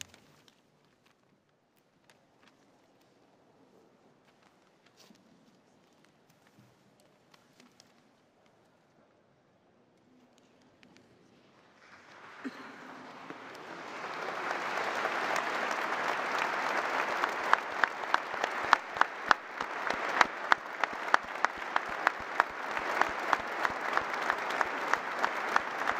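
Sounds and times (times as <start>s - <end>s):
crowd applauding: 11.8s - 25.9s
rhythmic unison clapping: 12.0s - 25.9s.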